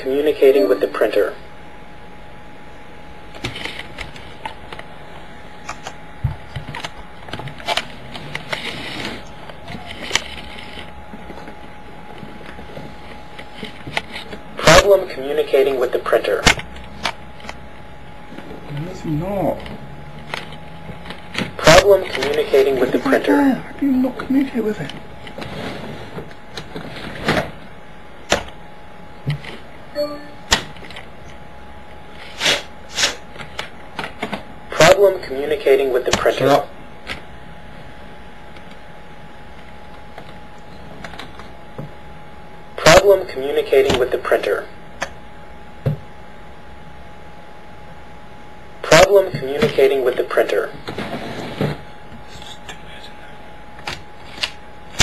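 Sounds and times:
steady low hum: 0.0s - 55.0s
short tone: 29.9s - 30.5s.

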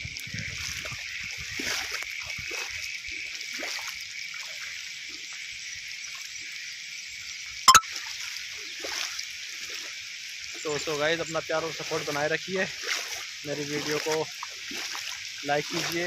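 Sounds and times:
rain falling on water: 7.5s - 16.0s.

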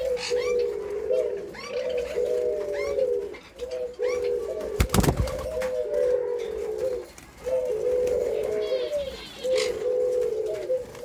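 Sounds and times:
doves cooing: 0.0s - 11.0s
wings fluttering: 4.6s - 5.8s.

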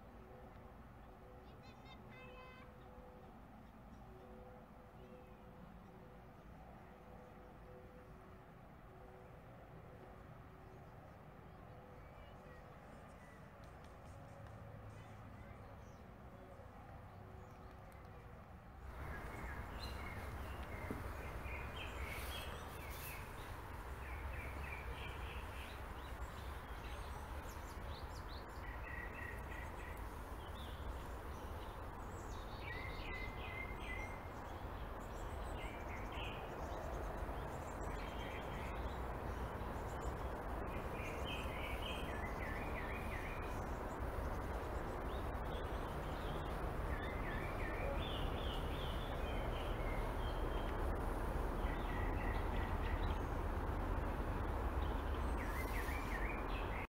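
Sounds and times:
outdoor ambience hiss and rumble: 0.0s - 56.9s
small birds chirping: 11.4s - 56.9s.

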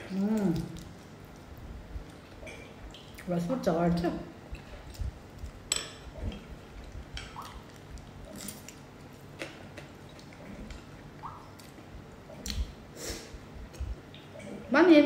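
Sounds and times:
chewing and slurping soup: 4.5s - 12.7s.

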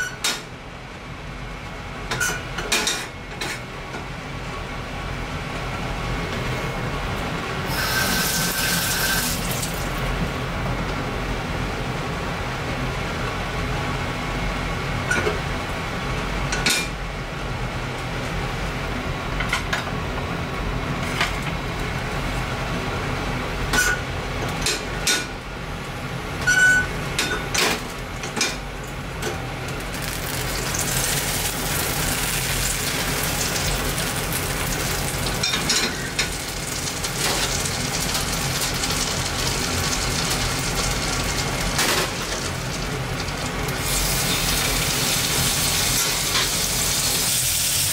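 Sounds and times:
fat sizzling in a frying pan: 7.7s - 10.0s, 29.8s - 47.9s.

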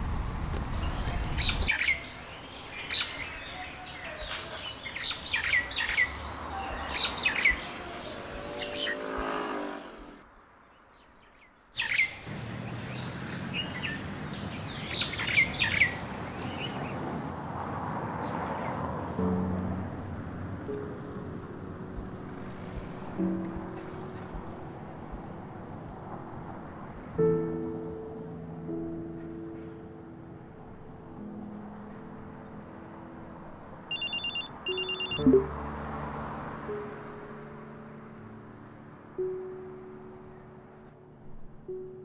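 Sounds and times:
low traffic hum: 0.0s - 39.2s
birds chirping: 0.7s - 16.8s.

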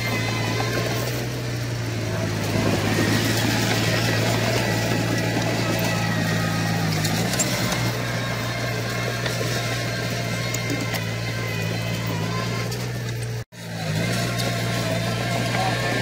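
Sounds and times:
bulldozer diesel engine droning: 0.0s - 16.0s.

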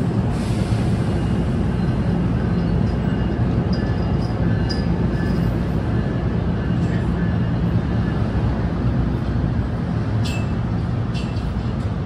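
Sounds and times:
train humming: 0.0s - 12.0s.

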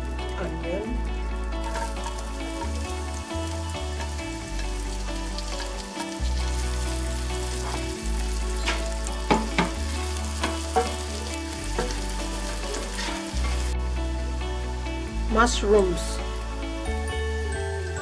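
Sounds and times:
onions sizzling in hot oil: 1.0s - 13.9s
spatula scraping a pan: 12.6s - 13.7s.

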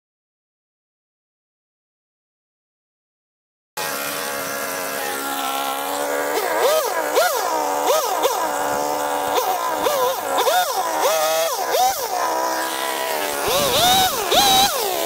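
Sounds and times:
chainsaw cutting wood: 3.8s - 15.0s
chainsaw revving: 3.8s - 15.0s.

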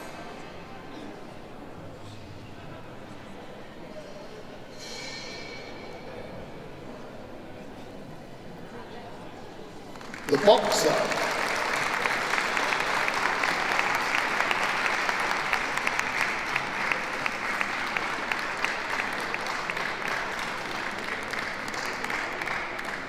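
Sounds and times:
audience clapping: 9.9s - 23.0s.

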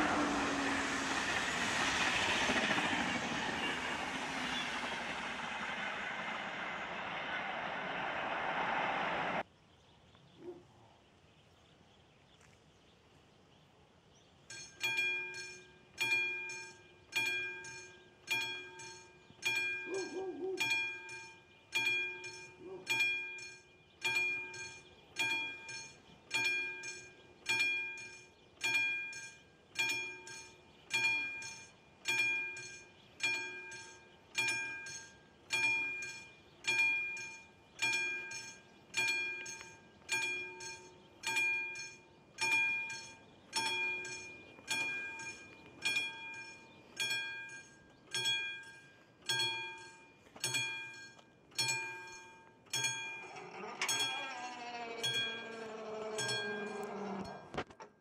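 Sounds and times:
passing train noise: 0.0s - 9.5s, 52.9s - 57.6s
level crossing warning bell ringing: 14.5s - 57.6s.

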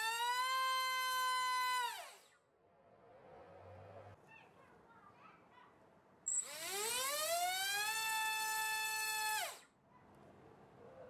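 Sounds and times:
electric motor whine: 6.4s - 9.6s.

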